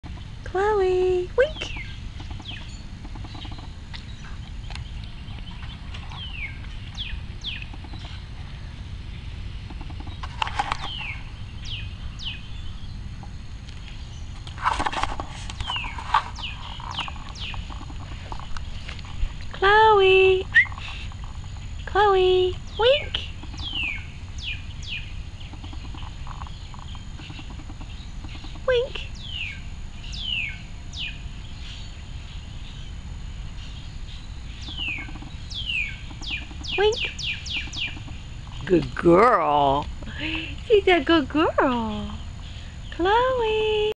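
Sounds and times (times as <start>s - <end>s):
low steady rumble: 0.0s - 43.9s
rustling clatters: 14.4s - 19.5s
bird whistling call: 20.4s - 20.9s.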